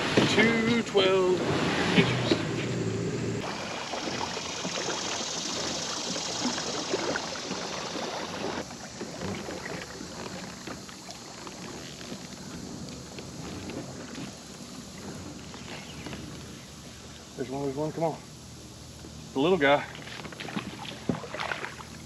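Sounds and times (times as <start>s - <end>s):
water swishing along kayak hull: 0.0s - 17.8s, 18.4s - 22.0s
high hiss: 0.0s - 20.1s
small splashes: 3.4s - 14.3s, 19.9s - 22.0s.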